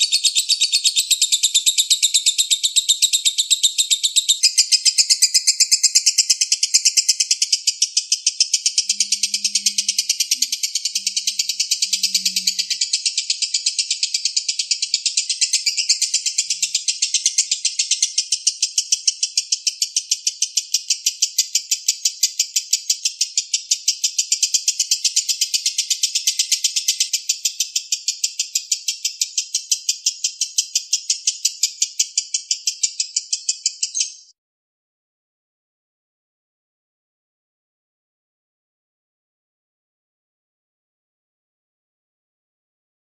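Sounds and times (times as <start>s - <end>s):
lovebird chattering: 0.0s - 34.3s.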